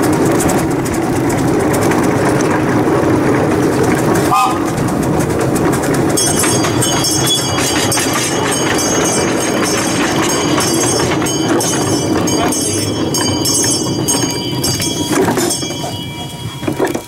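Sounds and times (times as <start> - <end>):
miniature train wheels clattering: 0.0 - 17.0
high ringing tones: 6.1 - 17.0.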